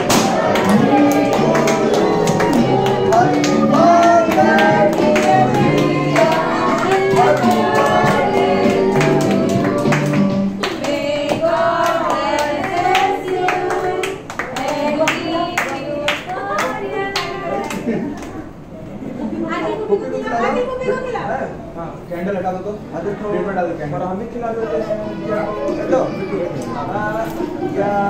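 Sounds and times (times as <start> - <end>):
song with singing and beat: 0.0 - 16.0.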